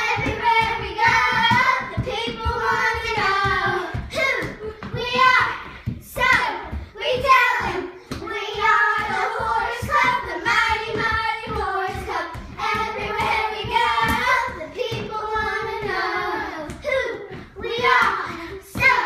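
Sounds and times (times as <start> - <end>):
girls singing together: 0.0 - 19.0.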